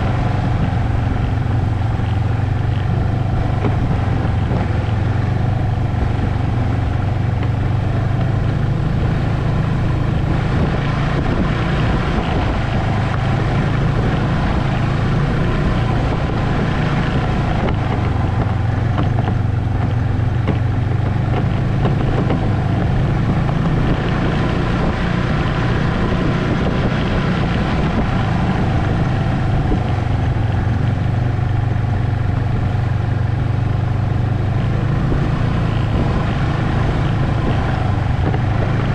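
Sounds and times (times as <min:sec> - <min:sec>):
snowmobile engine running: 0:00.0 - 0:38.9.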